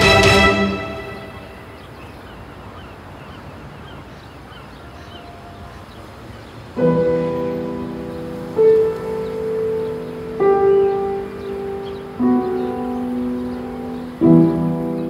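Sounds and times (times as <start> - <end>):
faint hiss: 5.3 - 15.0
piano chord ringing: 6.8 - 15.0.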